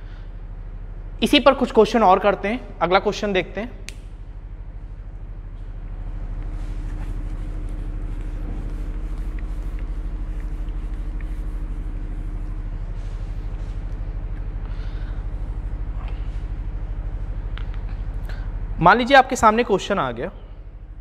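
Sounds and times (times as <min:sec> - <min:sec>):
throbbing low hum: 0:00.0 - 0:21.0
cloth wiping a whiteboard: 0:05.5 - 0:17.4.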